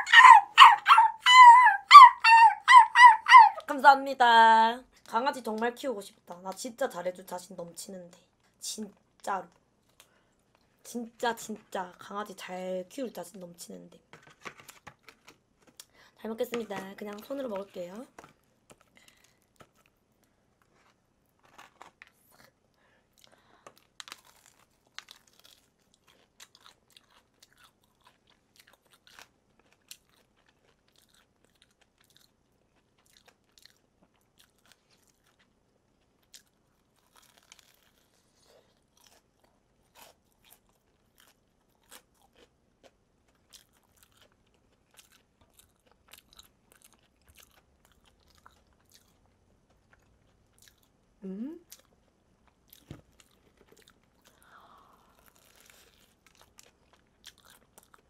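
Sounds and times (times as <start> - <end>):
chewing crispy fried chicken: 17.2 - 51.0, 51.6 - 58.0.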